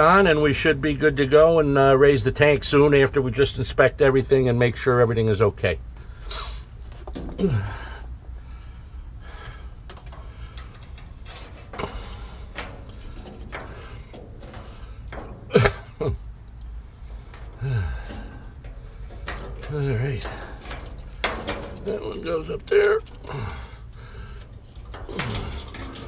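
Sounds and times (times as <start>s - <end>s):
low steady hum: 0.0s - 26.0s
person grunting with effort: 7.3s - 7.9s, 17.6s - 18.1s
hand handling rubber fuel line: 9.2s - 26.0s.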